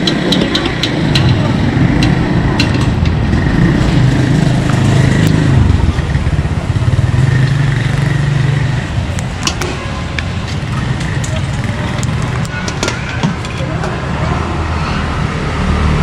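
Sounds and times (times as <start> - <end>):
metal utensils clicking: 0.0 - 3.2
motorcycle engine running: 0.0 - 13.5.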